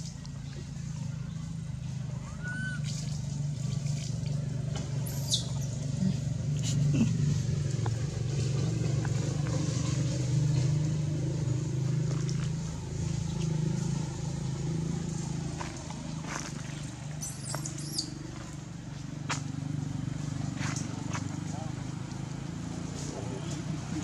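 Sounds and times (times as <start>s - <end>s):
vehicle engine drone: 0.0s - 24.0s
high squeaky calls: 2.2s - 3.1s, 5.0s - 5.8s, 17.1s - 18.2s.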